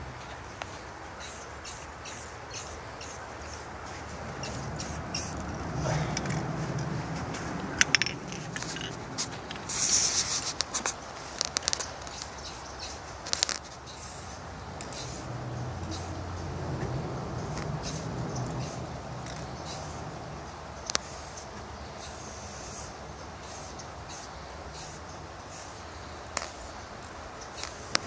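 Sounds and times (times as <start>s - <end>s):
spray paint can hissing: 2.6s - 5.4s, 7.9s - 16.2s, 17.5s - 20.0s, 21.0s - 26.8s, 27.5s - 28.0s.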